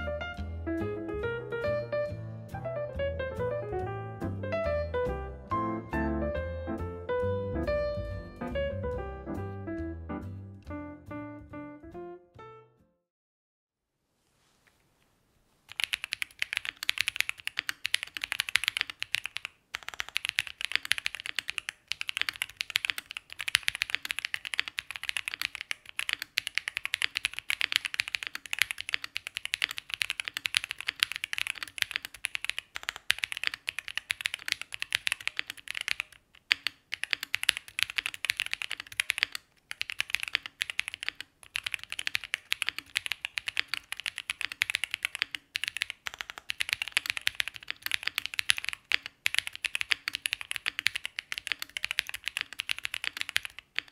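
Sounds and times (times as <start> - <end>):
fast typing on mechanical keyboard: 15.7 - 53.9.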